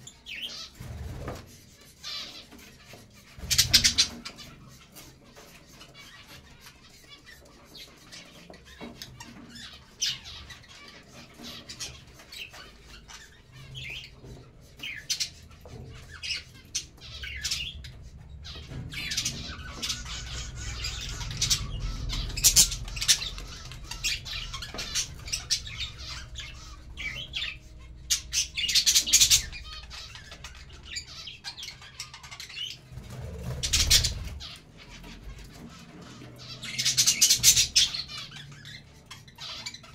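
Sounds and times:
budgerigars chirping: 0.0s - 39.9s
wings flapping: 0.6s - 1.7s, 32.4s - 37.9s.

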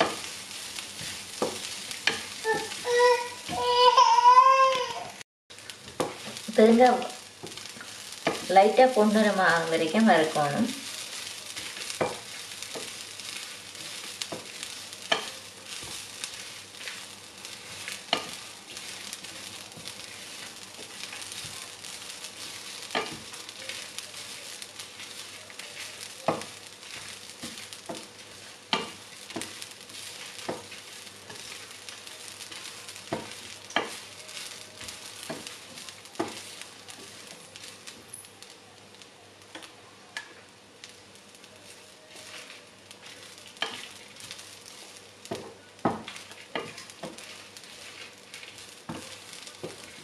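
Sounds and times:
spices roasting hiss: 0.0s - 50.0s.

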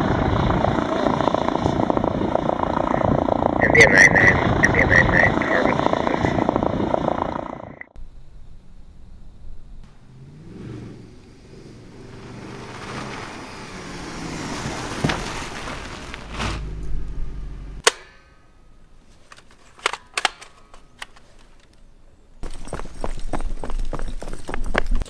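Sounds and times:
car engine rumbling: 0.0s - 19.1s
sharp crack: 11.1s - 17.2s, 17.8s - 18.7s.

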